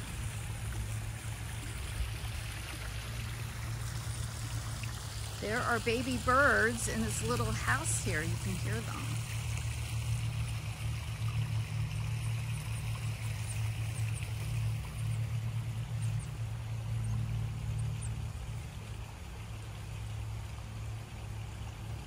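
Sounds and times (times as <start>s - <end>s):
running water: 0.0s - 22.0s
steady low hum: 0.0s - 22.0s.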